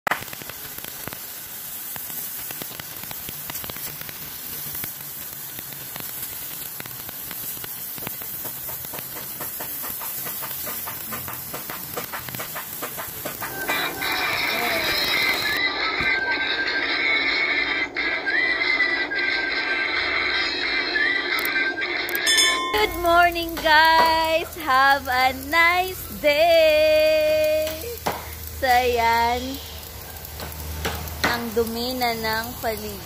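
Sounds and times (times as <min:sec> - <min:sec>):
water jet blasting concrete: 0:07.6 - 0:15.6.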